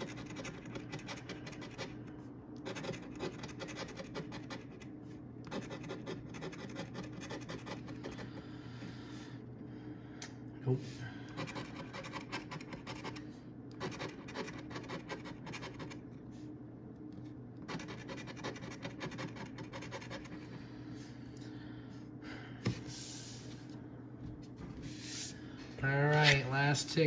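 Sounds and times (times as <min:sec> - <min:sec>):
coin scratching lottery ticket: 0:00.0 - 0:02.0, 0:02.6 - 0:04.9, 0:05.5 - 0:08.3, 0:11.4 - 0:13.2, 0:13.8 - 0:16.0, 0:17.6 - 0:20.4.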